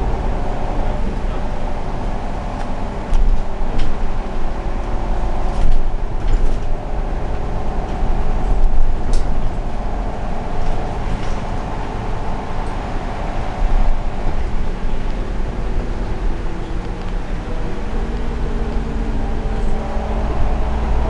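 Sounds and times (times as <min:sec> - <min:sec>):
bus engine and road rumble: 0:00.0 - 0:21.0
rattles and knocks from bus body: 0:01.0 - 0:13.0.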